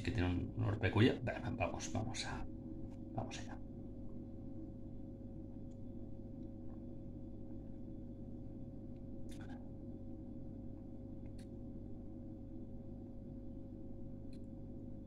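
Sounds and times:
electrical room hum: 0:00.0 - 0:15.0.

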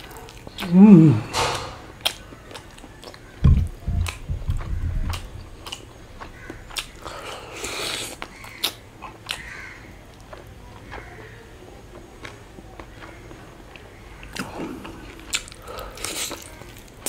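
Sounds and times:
low rumbling: 0:00.6 - 0:02.1, 0:03.4 - 0:06.3
heavy low thump: 0:01.0 - 0:01.9, 0:03.4 - 0:05.7
mouth clicks and smacks chewing: 0:02.0 - 0:09.5, 0:11.9 - 0:17.0.

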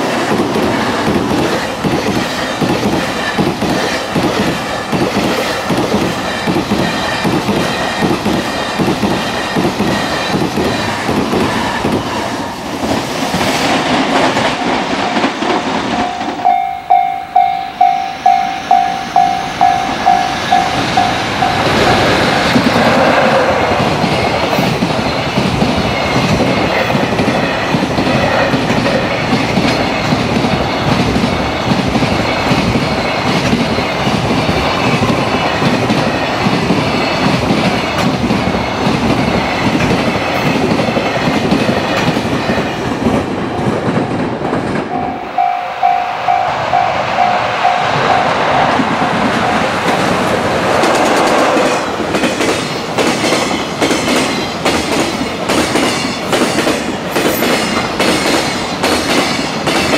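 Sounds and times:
freight train rumbling past: 0:00.0 - 0:59.9
rail-joint clickety-clack: 0:00.0 - 0:59.9
level crossing warning bell ringing: 0:14.4 - 0:22.3, 0:44.9 - 0:48.8.

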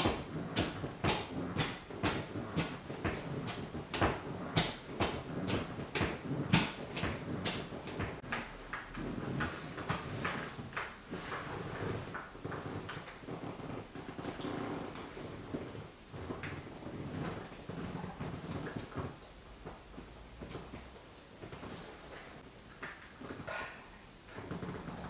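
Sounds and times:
sneaker tapping on wooden floor: 0:00.0 - 0:08.3.

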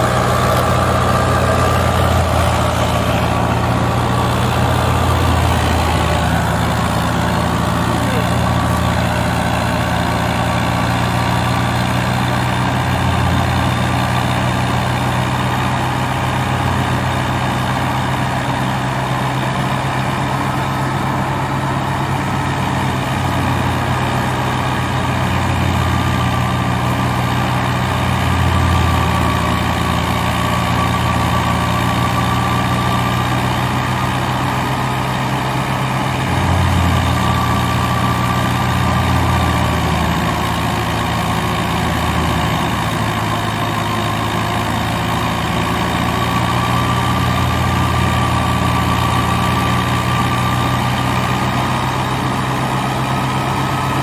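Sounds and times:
thresher running: 0:00.0 - 0:54.0
tractor diesel engine running: 0:00.0 - 0:54.0.

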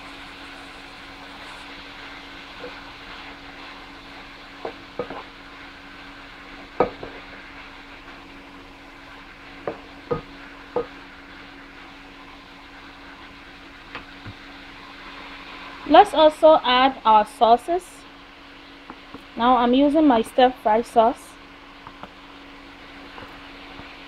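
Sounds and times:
steady low hum: 0:00.0 - 0:23.8
vegetables sizzling in a frying pan: 0:00.0 - 0:24.0
wooden spatula knocking on pan: 0:04.6 - 0:05.2, 0:06.8 - 0:07.2, 0:09.6 - 0:11.0.

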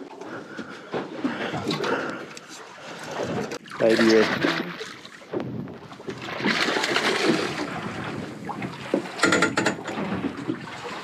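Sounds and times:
fish splashing at the surface: 0:06.1 - 0:08.2.

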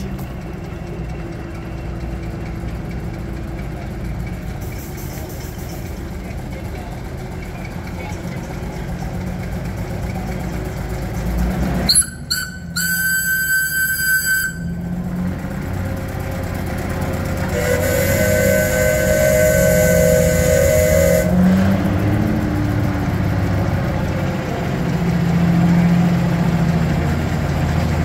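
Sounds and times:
engine idling: 0:00.0 - 0:28.0
high whistle toots: 0:11.9 - 0:14.8, 0:17.6 - 0:21.4
low horn tone: 0:17.4 - 0:21.7.

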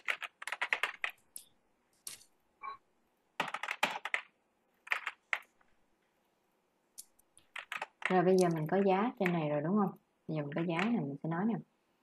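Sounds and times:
keyboard keystrokes clicking: 0:07.0 - 0:09.4, 0:10.5 - 0:11.0.

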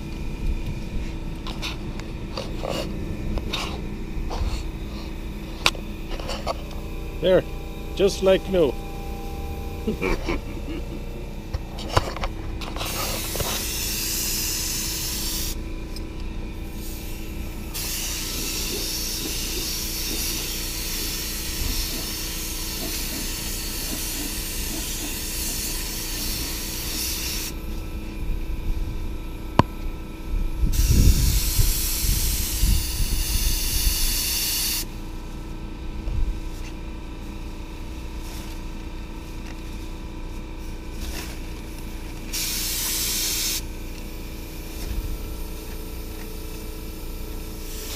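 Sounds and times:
steady low hum: 0:00.0 - 0:47.9
paint spray gun hissing: 0:12.8 - 0:15.6, 0:16.6 - 0:27.6, 0:30.7 - 0:34.9, 0:42.3 - 0:44.8, 0:46.8 - 0:47.9.

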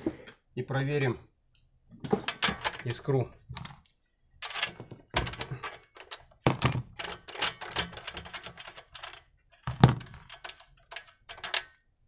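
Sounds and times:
metal wrench clinks and rattles: 0:03.6 - 0:11.8.

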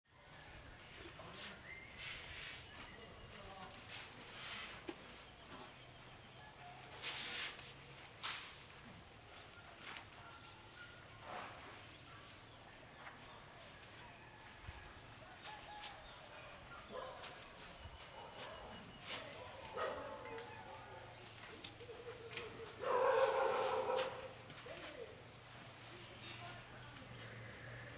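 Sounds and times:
soft rustling: 0:15.2 - 0:26.6.

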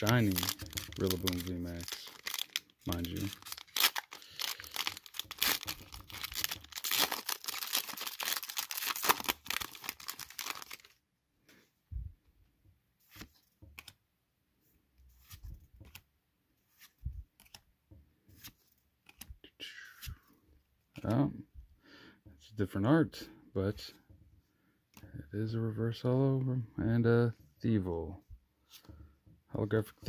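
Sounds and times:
cards rustling and tapping: 0:00.0 - 0:10.9, 0:13.0 - 0:14.0, 0:15.0 - 0:19.4, 0:28.6 - 0:29.4
foil wrapper tearing and crinkling: 0:00.0 - 0:11.0.

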